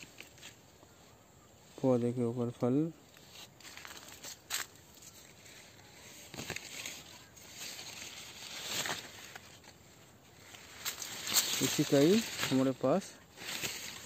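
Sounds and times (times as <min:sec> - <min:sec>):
leaves rustling: 0:00.0 - 0:14.0
soft crackles: 0:03.1 - 0:14.0.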